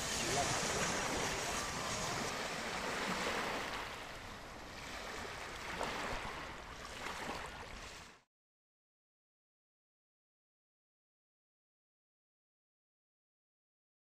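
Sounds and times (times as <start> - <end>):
rushing outdoor noise: 0.0 - 6.9.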